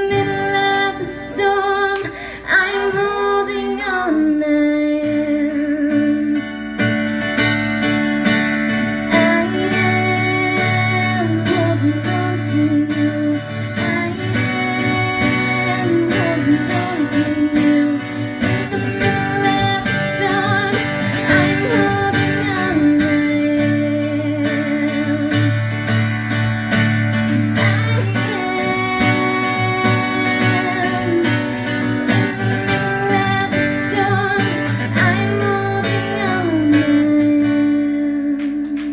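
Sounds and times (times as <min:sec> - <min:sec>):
acoustic guitars strumming: 0:00.0 - 0:38.9.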